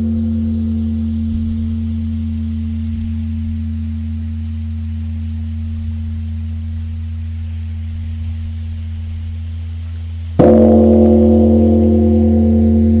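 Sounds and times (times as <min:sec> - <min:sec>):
large temple bell ringing: 0:00.0 - 0:03.4, 0:10.4 - 0:13.0.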